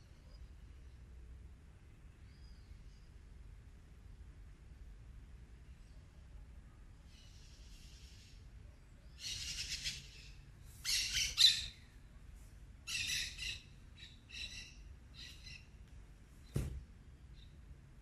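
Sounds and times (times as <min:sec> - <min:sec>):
bird pulsed calls: 0:09.2 - 0:11.9, 0:12.9 - 0:15.7
sharp knock: 0:16.6 - 0:16.8.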